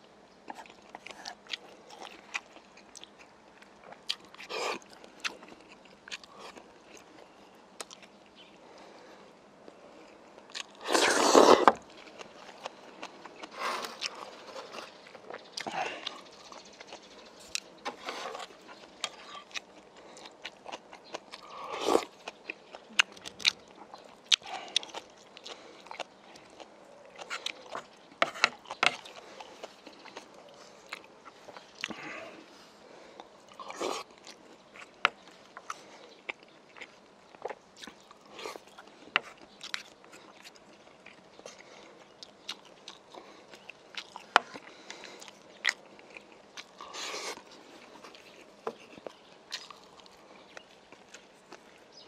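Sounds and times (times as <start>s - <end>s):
chewing and mouth smacks: 0.4s - 8.6s, 10.0s - 17.8s, 18.4s - 32.1s, 33.2s - 52.0s
slurps from a spoon: 10.8s - 11.7s.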